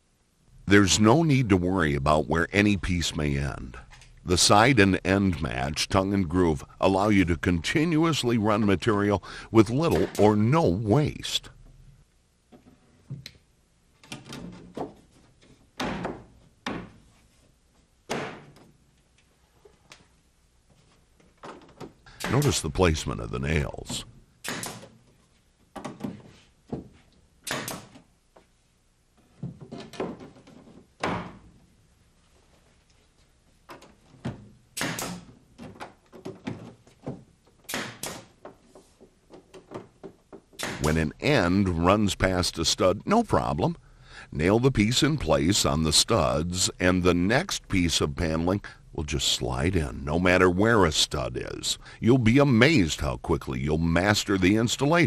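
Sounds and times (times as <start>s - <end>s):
nail gun shots: 9.9s - 10.4s, 22.2s - 22.6s, 24.4s - 24.9s, 27.4s - 28.0s, 34.8s - 35.3s, 37.7s - 38.3s, 40.6s - 41.0s.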